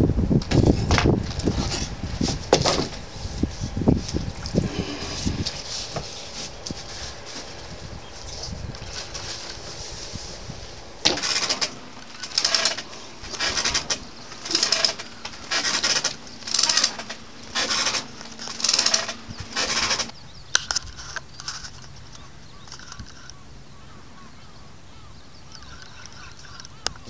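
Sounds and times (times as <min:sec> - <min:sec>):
sharp clicks: 0:11.0 - 0:23.4.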